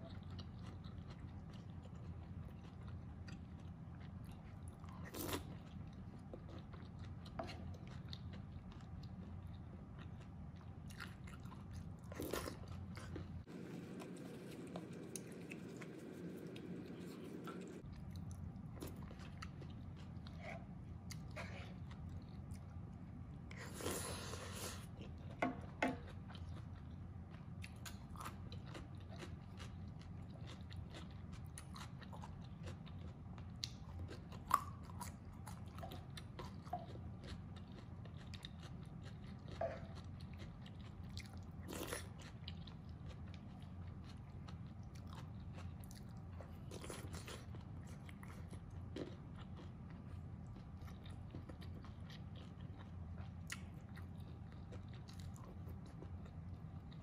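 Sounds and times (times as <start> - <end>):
person chewing food: 0.0 - 57.0
low hum: 13.4 - 21.1.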